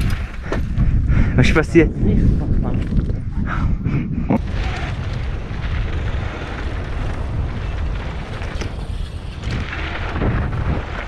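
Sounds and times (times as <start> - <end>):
wind buffeting microphone: 0.0 - 11.0
bike rolling over trail: 4.4 - 11.0.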